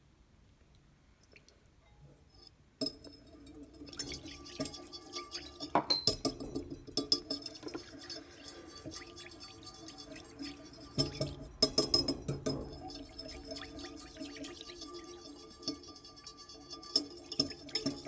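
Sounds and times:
utensil clinking against glass bowl: 0:02.8 - 0:18.0.

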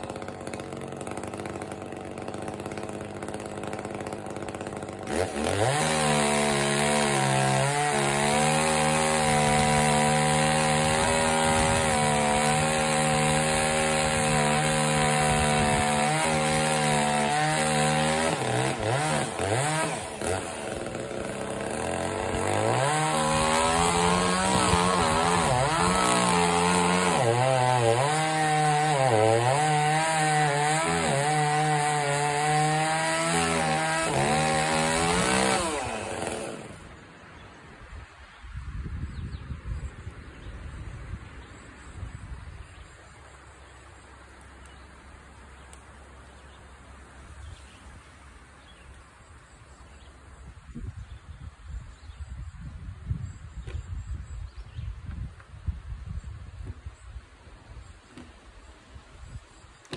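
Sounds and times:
chainsaw cutting wood: 0:00.0 - 0:36.9.

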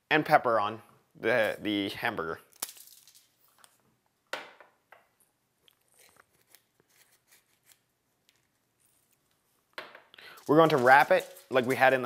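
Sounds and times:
shaker rattle: 0:10.3 - 0:12.0.

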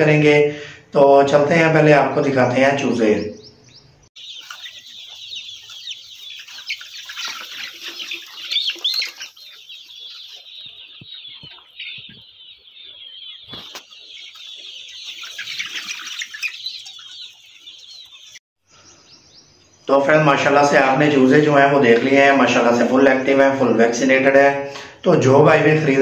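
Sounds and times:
chicks peeping and chirping: 0:00.0 - 0:26.0
chicken clucks: 0:03.3 - 0:18.4.

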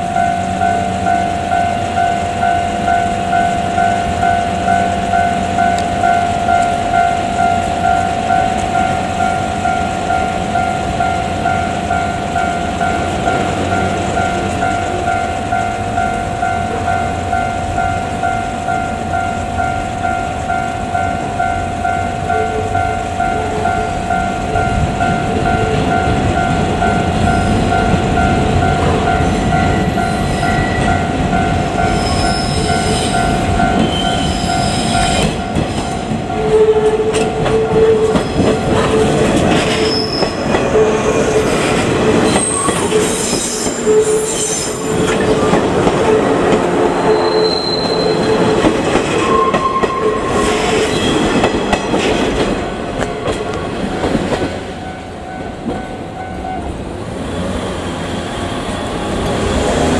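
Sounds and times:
train wheels clattering: 0:24.7 - 0:56.1
high wheel squeals: 0:31.8 - 0:51.8.

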